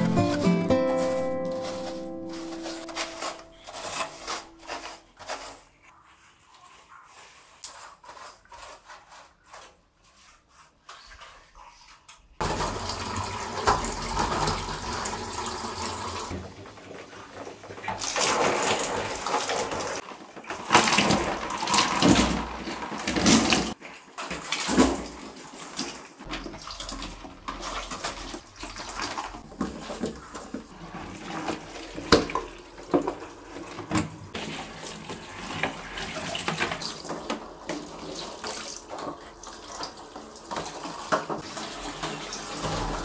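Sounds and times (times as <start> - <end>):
sponge scrubbing metal dish rack: 0.0 - 11.4, 34.4 - 43.0
water splashing over metal rack: 12.4 - 16.3, 17.8 - 20.0, 20.6 - 43.0.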